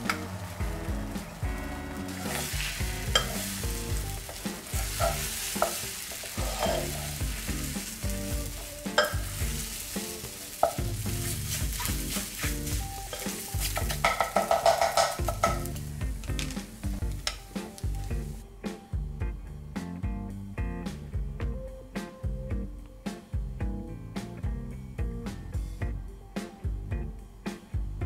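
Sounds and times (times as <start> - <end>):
eggs sizzling in a skillet: 0.0 - 18.4
background music: 0.0 - 28.0
utensil clicking against pan: 3.1 - 3.5, 4.2 - 7.0, 10.6 - 11.0, 13.1 - 16.6, 17.2 - 17.9
plastic tongs scraping pan: 4.3 - 7.2.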